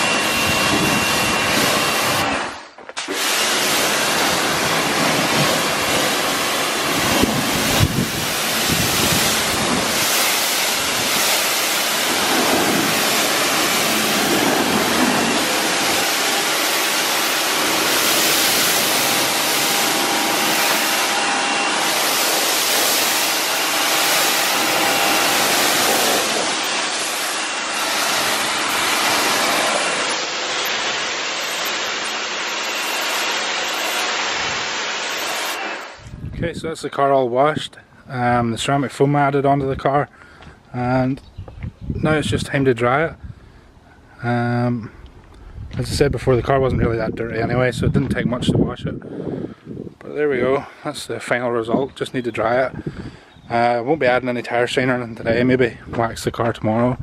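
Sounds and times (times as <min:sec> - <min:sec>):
pressure washer spray hissing: 0:00.0 - 0:36.0.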